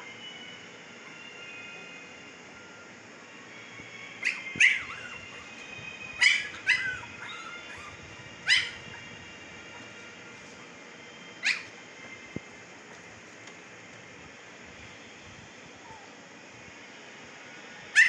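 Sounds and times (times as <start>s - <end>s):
puppies yelping: 4.2s - 5.6s, 6.2s - 10.0s, 11.4s - 11.8s.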